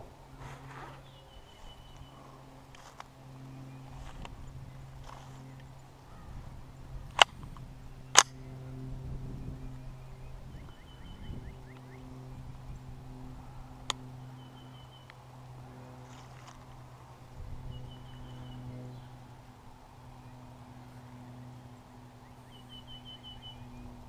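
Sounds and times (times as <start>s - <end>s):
low hum: 0.0s - 24.0s
bird chirping: 0.6s - 2.4s, 9.3s - 12.5s, 14.2s - 15.1s, 17.6s - 19.2s, 21.6s - 24.0s.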